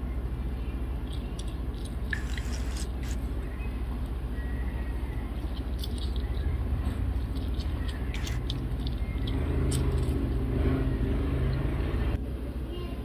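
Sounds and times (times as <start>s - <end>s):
steady low rumble: 0.0s - 13.0s
orange squeezed by hand dripping: 1.0s - 3.3s, 5.4s - 10.3s.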